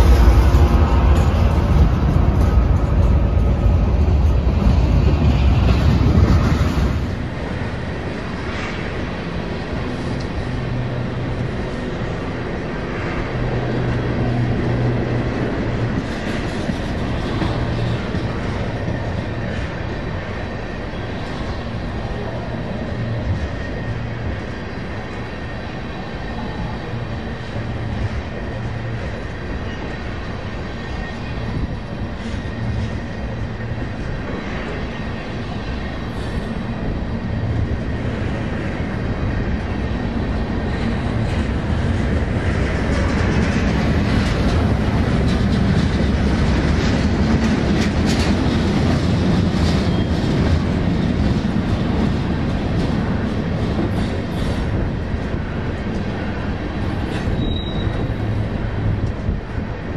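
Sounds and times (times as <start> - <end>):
train rumbling past: 0.0 - 59.9
high wheel squeal: 57.1 - 58.2.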